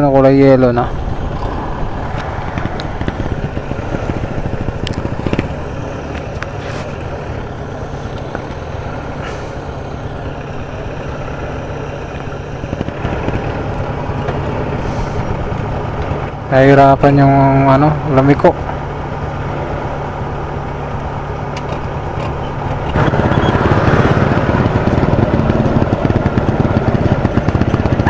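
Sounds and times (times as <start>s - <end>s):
motorcycle engine running: 0.0s - 28.0s
sharp clicks and knocks: 1.5s - 6.5s, 21.5s - 23.1s.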